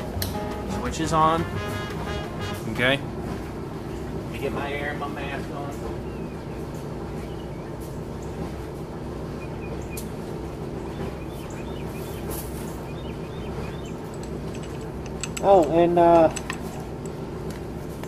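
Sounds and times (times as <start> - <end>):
steady low hum: 0.0 - 18.0
birds chirping: 3.5 - 17.5.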